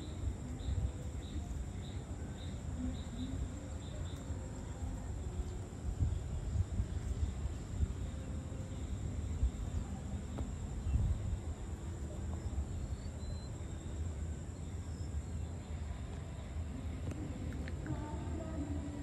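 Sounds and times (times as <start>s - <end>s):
insects trilling: 0.0s - 19.0s
faint high chirps: 11.9s - 16.6s.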